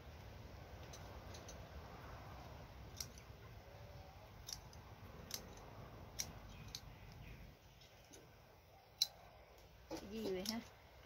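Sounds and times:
scissors snipping stems: 2.9s - 3.3s, 4.4s - 7.2s, 9.9s - 10.7s.

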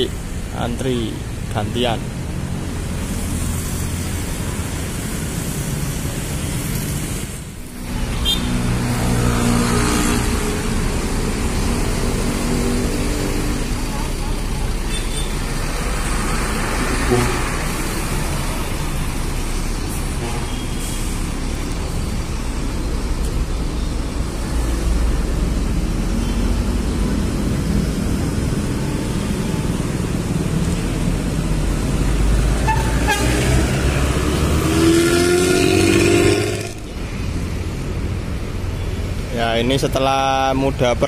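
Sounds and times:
street traffic: 0.0s - 41.0s
vehicle horn: 8.1s - 8.6s, 14.9s - 15.4s, 32.6s - 33.5s
diesel coach engine rumble: 10.3s - 34.6s.

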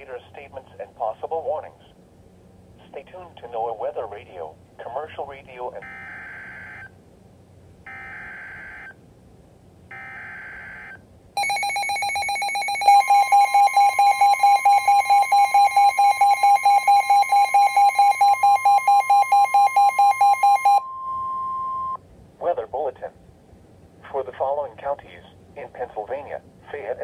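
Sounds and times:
steady warning alarm tone: 5.8s - 6.9s, 7.9s - 9.0s, 9.9s - 22.0s
rapid electronic pulsing alarm beep: 7.9s - 8.9s, 9.9s - 22.0s.

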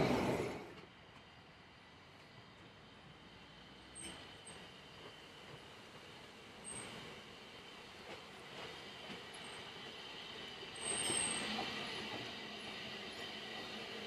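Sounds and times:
train wheels rolling on rail: 0.0s - 14.0s
wheel squeal: 10.7s - 13.4s.

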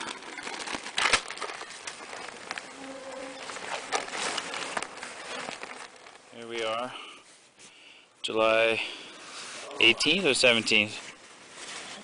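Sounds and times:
rustles and light knocks: 0.0s - 7.6s.

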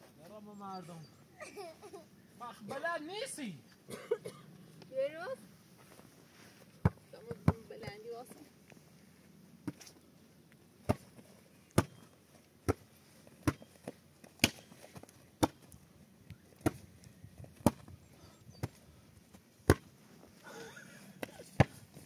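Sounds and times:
hands slapping volleyball: 14.4s - 14.7s, 19.6s - 19.9s.

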